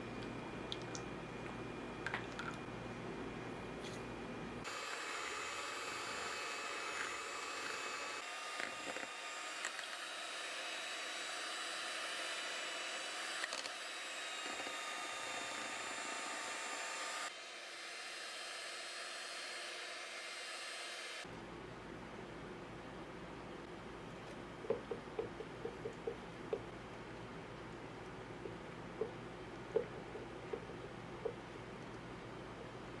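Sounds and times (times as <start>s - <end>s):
electric hand mixer whipping cream: 4.6s - 21.3s.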